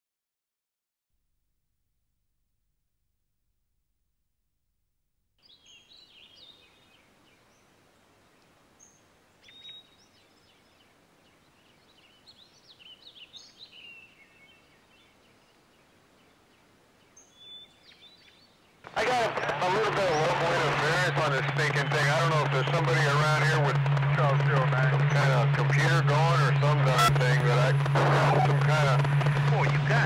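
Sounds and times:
small birds chirping: 0:05.4 - 0:23.6.

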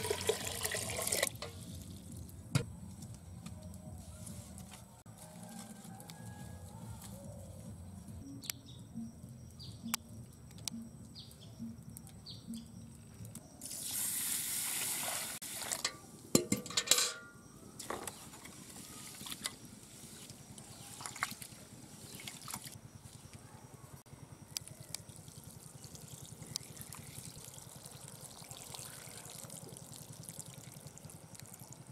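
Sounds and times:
metal pot clanking: 0:15.8 - 0:17.4.

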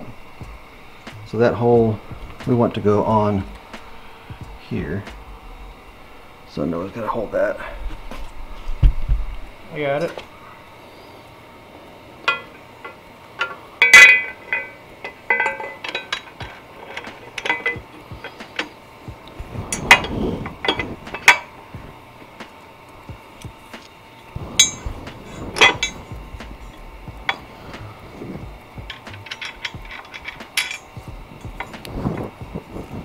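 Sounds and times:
metal parts clinking and knocking: 0:12.3 - 0:18.8, 0:19.7 - 0:21.5, 0:24.6 - 0:32.3.

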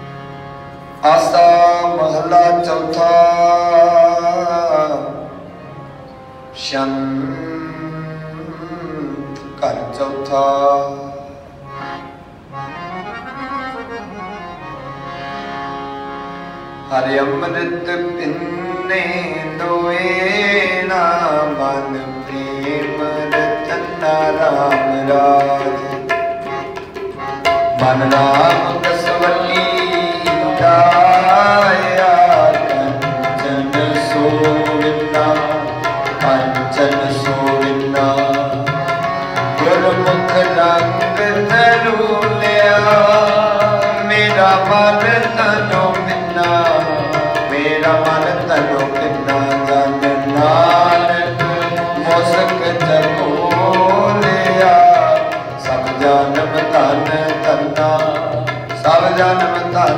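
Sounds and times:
harmonium melody: 0:00.0 - 0:59.9
tabla drumming: 0:16.9 - 0:59.9
person singing: 0:17.0 - 0:26.7, 0:27.8 - 0:38.9, 0:39.5 - 0:59.9.

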